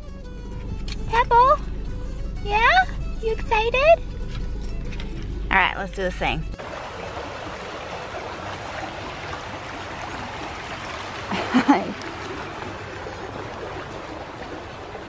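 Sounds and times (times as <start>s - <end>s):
creek running over rocks: 6.6s - 15.0s.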